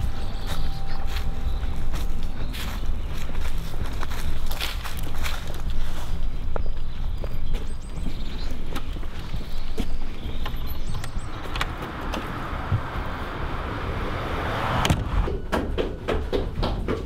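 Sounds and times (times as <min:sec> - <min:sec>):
door opening and shutting: 0:14.6 - 0:15.5.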